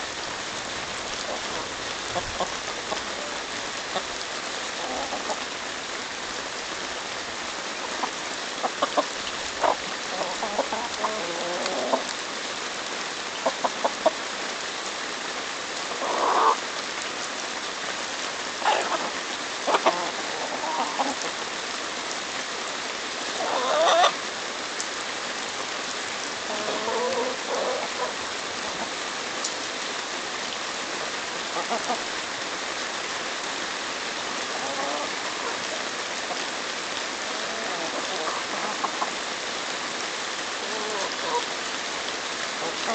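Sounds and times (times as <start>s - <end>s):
rain hiss: 0.0s - 42.9s
hens clucking: 1.2s - 4.2s, 4.8s - 5.5s, 7.8s - 12.1s, 13.4s - 14.2s, 15.9s - 16.6s, 18.6s - 21.4s, 23.4s - 24.2s, 26.5s - 29.0s, 31.5s - 32.1s, 34.5s - 36.5s, 37.3s - 39.2s, 40.6s - 41.5s
hens squawking: 4.8s - 5.4s, 7.8s - 12.1s, 15.9s - 16.6s, 18.6s - 21.3s, 23.4s - 24.2s, 26.5s - 29.0s, 31.5s - 32.1s, 34.5s - 36.4s, 37.3s - 39.2s, 40.6s - 41.5s.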